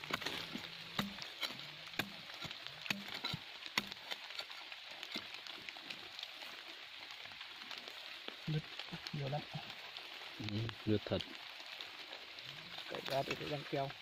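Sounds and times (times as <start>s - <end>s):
metal tool scraping hard soil: 0.0s - 5.3s
steady hiss: 0.0s - 14.0s.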